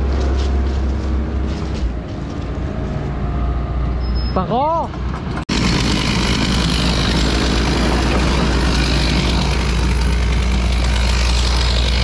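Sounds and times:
heavy machine engine running: 0:04.9 - 0:12.0.

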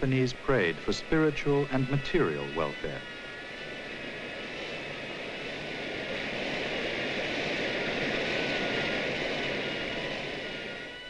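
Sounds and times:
faint sustained high tones: 0:00.0 - 0:07.0.

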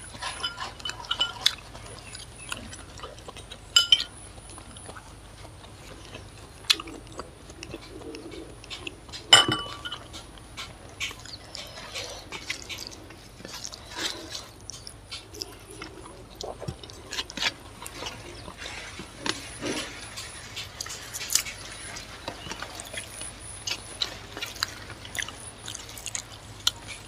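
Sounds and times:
eating sounds: 0:00.0 - 0:27.0
glass bowl clinking down: 0:00.4 - 0:01.4, 0:03.8 - 0:04.1, 0:09.4 - 0:10.0.

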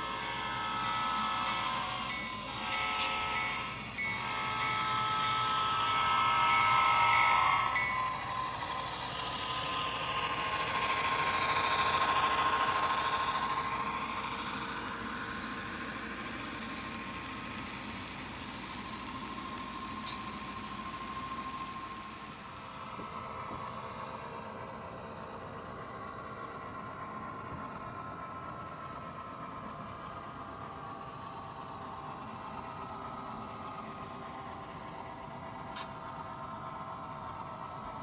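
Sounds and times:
model locomotive horn: 0:00.0 - 0:22.0
model train rumbling past: 0:00.0 - 0:38.0.

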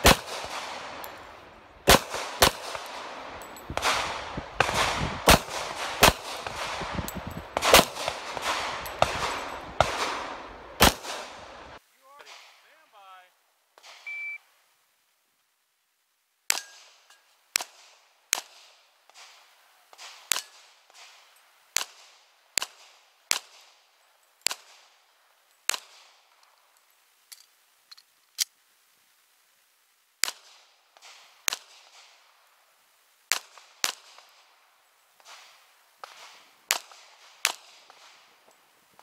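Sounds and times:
pistol shots: 0:00.0 - 0:11.8.

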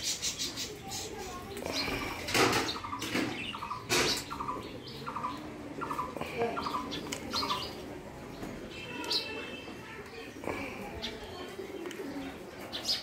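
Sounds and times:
parakeets chirping: 0:00.0 - 0:09.6.

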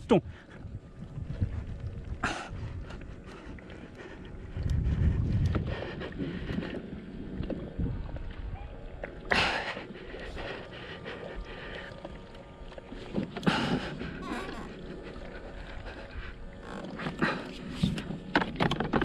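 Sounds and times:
wind on the microphone: 0:00.0 - 0:09.0
water against the hull: 0:00.0 - 0:19.0
person breathing hard: 0:02.2 - 0:07.0, 0:09.3 - 0:12.3, 0:13.4 - 0:16.5.

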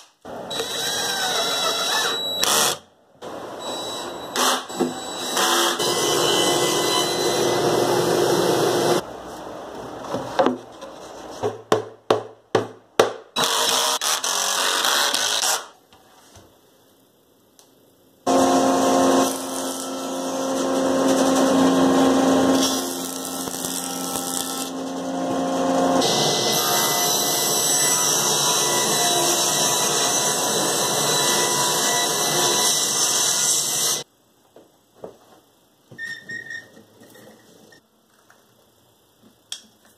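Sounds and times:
table saw cutting: 0:03.7 - 0:09.0, 0:18.3 - 0:34.0.

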